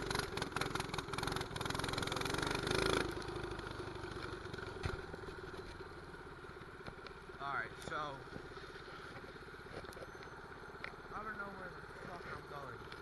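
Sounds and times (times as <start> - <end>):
mini bike engine revving: 0.0 - 6.2.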